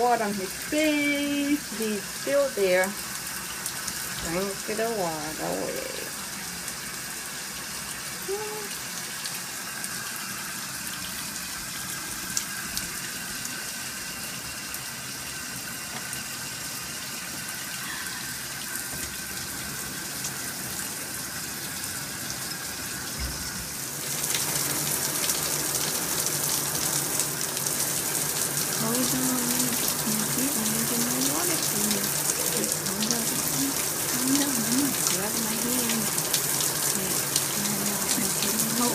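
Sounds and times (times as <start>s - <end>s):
shower water hissing: 0.0s - 38.9s.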